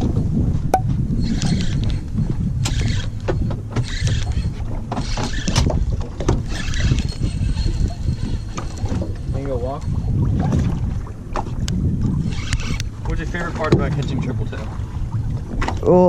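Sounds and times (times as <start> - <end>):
water slapping against hull: 0.0 - 16.0
wind rumbling on microphone: 0.0 - 16.0.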